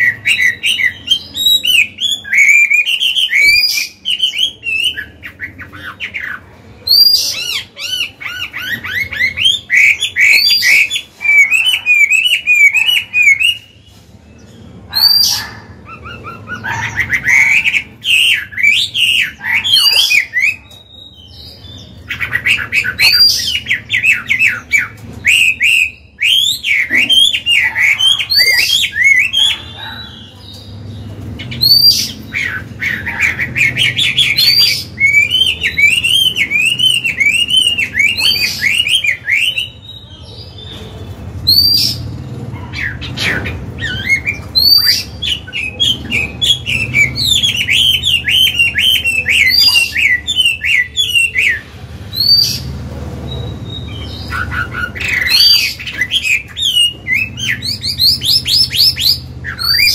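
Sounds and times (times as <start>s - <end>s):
songbird singing: 0.0s - 59.9s.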